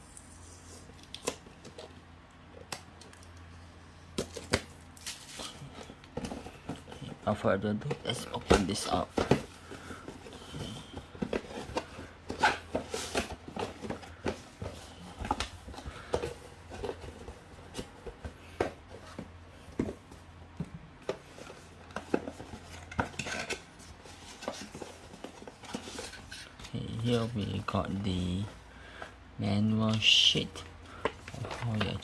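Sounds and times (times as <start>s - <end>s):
cardboard box handled by hand: 5.5s - 23.2s.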